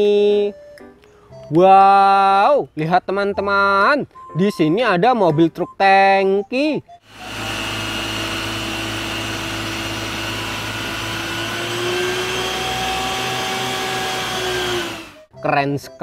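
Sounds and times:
truck engine driving pump: 7.0s - 15.3s.

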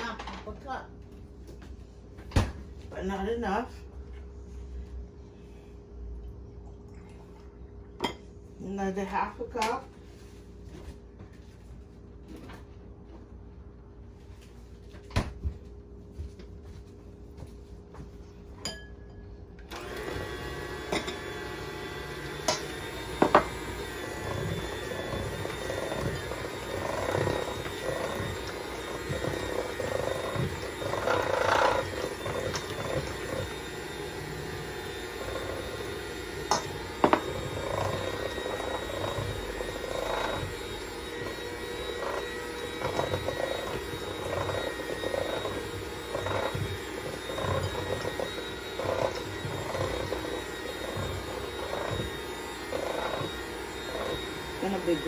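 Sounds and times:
electric hand mixer beating batter: 19.6s - 55.0s
beaters scraping metal bowl: 20.0s - 55.0s.

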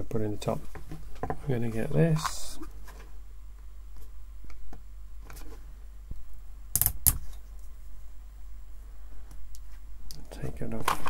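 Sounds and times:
cable handling clicks and rustles: 9.3s - 11.0s.

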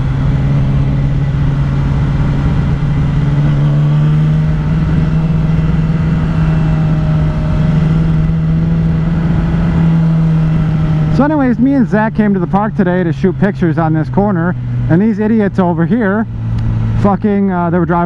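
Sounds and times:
wind rushing over microphone: 0.0s - 11.2s
motorcycle engine cruising: 0.0s - 18.0s.

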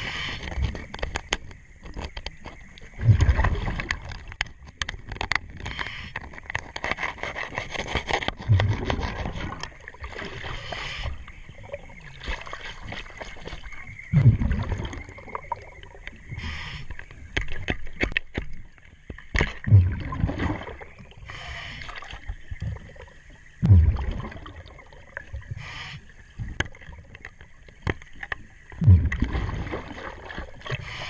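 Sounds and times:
exhaled bubbles gurgling: 2.7s - 4.4s, 8.4s - 18.0s, 18.6s - 31.0s
tool scraping on hull: 5.7s - 9.6s
regulator hissing inhalations: 10.5s - 11.3s, 16.3s - 17.0s, 21.2s - 22.0s, 25.6s - 26.2s, 30.7s - 31.0s.

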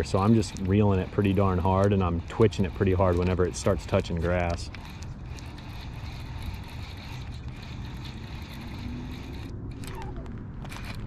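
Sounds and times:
fishing reel gears whirring: 0.0s - 11.0s
low rumble: 7.1s - 11.0s.

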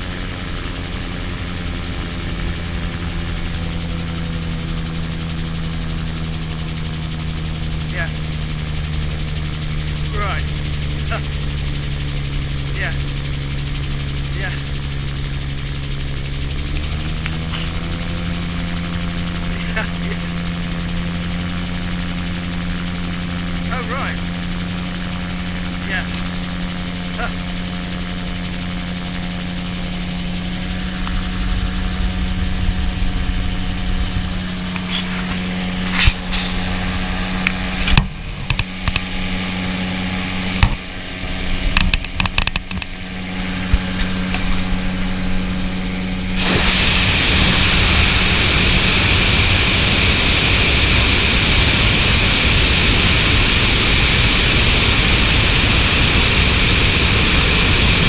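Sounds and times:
gyroplane engine and propeller hum: 0.0s - 58.0s
rush of wind: 30.6s - 58.0s
sharp knocks and bumps: 41.7s - 43.0s.

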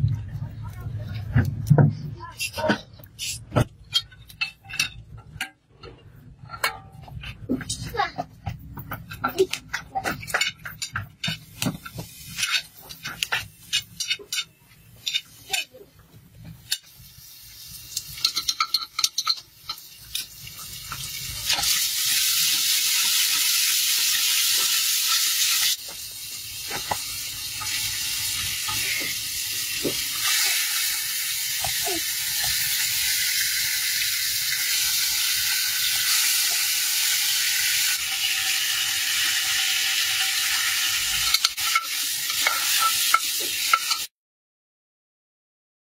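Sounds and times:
onions sizzling: 10.2s - 44.1s.

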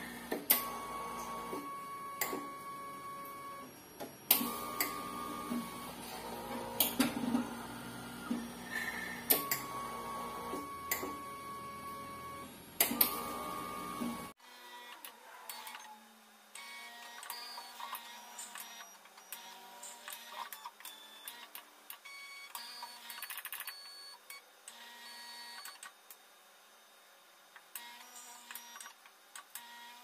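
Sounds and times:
pump hum: 4.4s - 14.3s.

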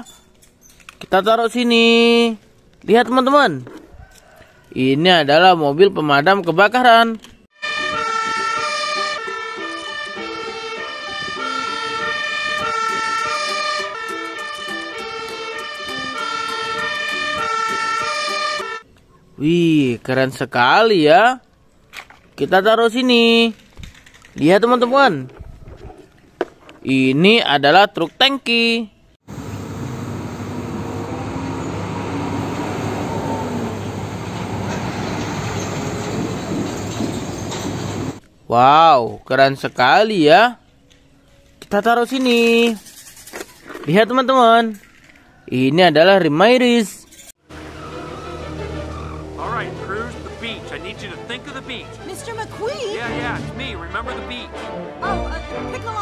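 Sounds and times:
fire engine two-tone siren: 7.6s - 18.8s, 29.3s - 36.1s, 47.5s - 51.0s
tanker truck driving past: 29.3s - 38.2s, 47.4s - 53.8s.

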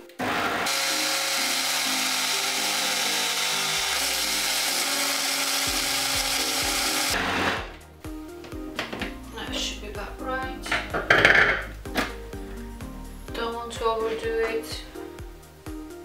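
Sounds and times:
blender motor running: 0.0s - 7.7s.

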